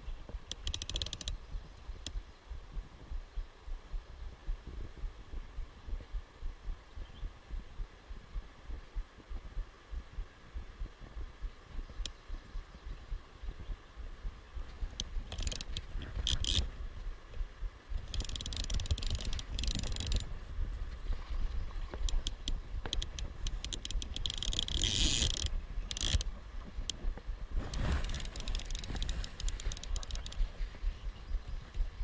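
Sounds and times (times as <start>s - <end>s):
fishing reel drag ratcheting: 0.5s - 1.4s, 15.0s - 16.7s, 18.0s - 20.3s, 22.0s - 26.3s, 27.7s - 30.4s
steady low rumble: 1.4s - 24.6s, 25.4s - 32.0s.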